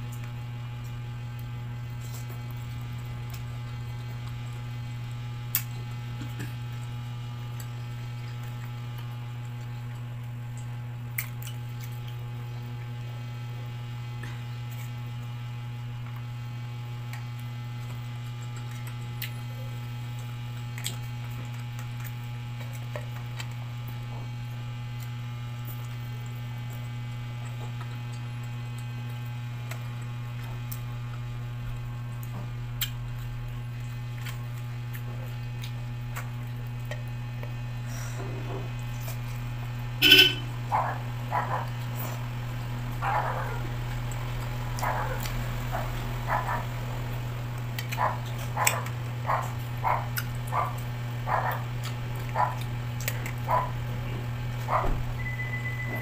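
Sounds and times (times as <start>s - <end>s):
soft chewing: 0.0s - 54.9s
steady low hum: 0.0s - 56.0s.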